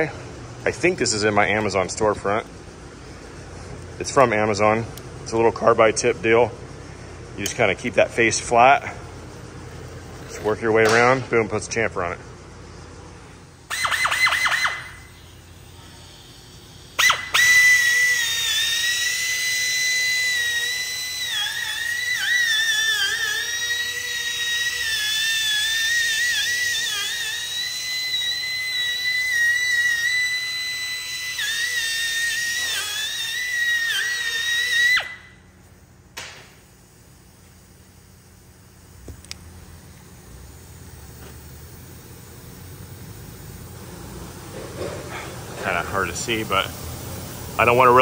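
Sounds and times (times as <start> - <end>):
die grinder whining: 13.7 - 35.2.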